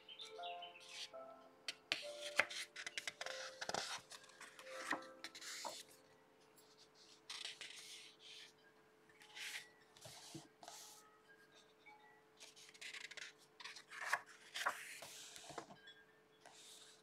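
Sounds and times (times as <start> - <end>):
soft background music: 0.0 - 17.0
paper pages turning: 2.0 - 5.9, 7.0 - 8.1, 12.6 - 15.7.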